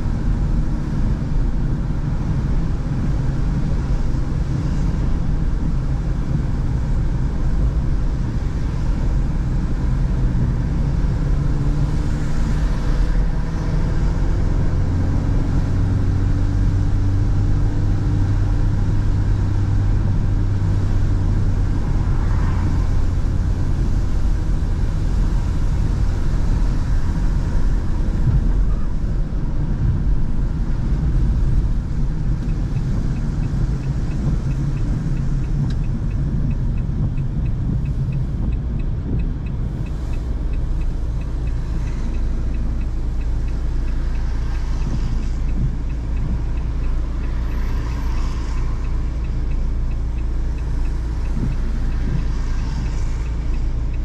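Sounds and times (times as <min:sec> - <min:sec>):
car cabin road rumble: 0:00.0 - 0:54.0
faint regular ticking: 0:15.2 - 0:54.0.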